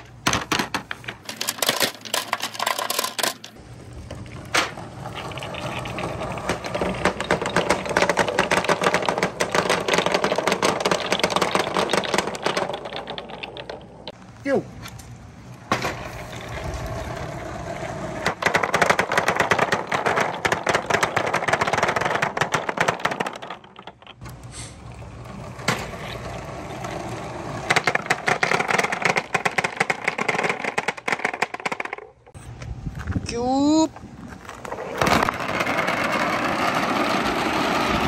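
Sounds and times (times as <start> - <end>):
balls clattering down a marble run: 0.2 - 3.6, 4.4 - 14.2, 18.2 - 24.3, 25.3 - 32.4.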